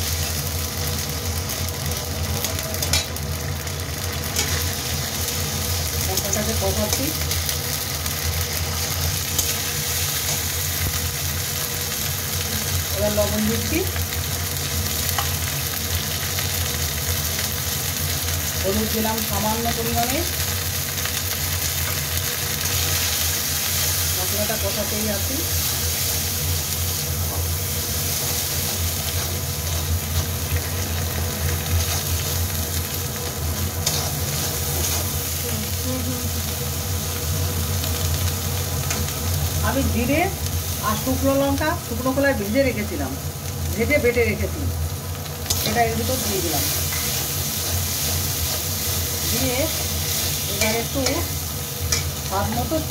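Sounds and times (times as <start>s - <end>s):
food sizzling in hot oil: 0.0s - 52.9s
spatula scraping pan: 33.8s - 35.2s.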